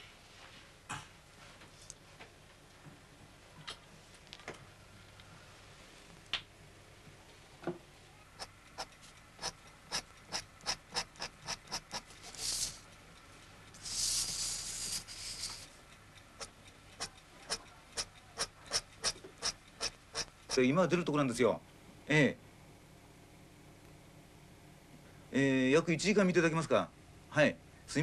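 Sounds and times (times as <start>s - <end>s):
eraser rubbing on paper: 8.4s - 12.8s, 13.8s - 15.7s, 16.4s - 20.6s.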